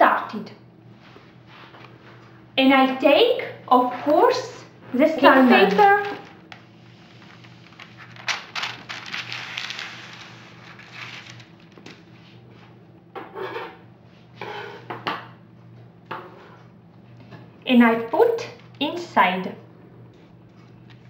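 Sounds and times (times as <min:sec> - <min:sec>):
parchment paper crinkling: 0:05.6 - 0:12.3.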